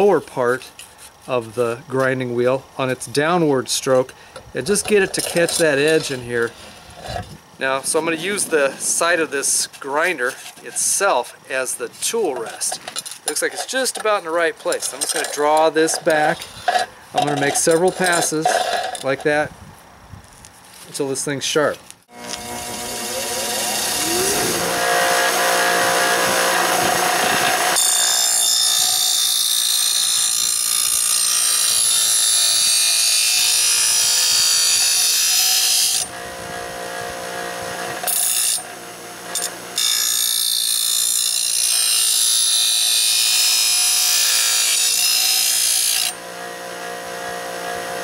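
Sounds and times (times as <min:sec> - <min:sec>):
bench grinder running: 0:22.1 - 0:48.0
metal blade grinding hiss: 0:22.6 - 0:24.7.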